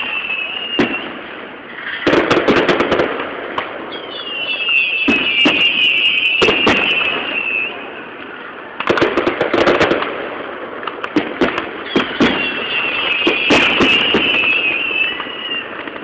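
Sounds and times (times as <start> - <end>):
high shrill whistle: 0.0 - 1.3, 3.9 - 8.1, 11.8 - 15.8
fireworks bangs and crackles: 0.0 - 16.0.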